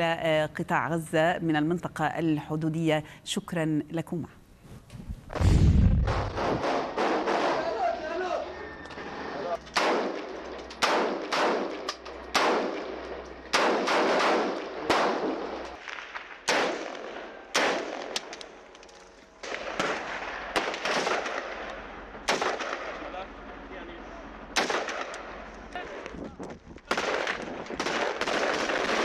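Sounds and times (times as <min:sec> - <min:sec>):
rifle shots echoing: 0:06.1 - 0:07.8, 0:09.7 - 0:18.6, 0:19.4 - 0:23.1, 0:24.5 - 0:25.4, 0:26.9 - 0:29.0.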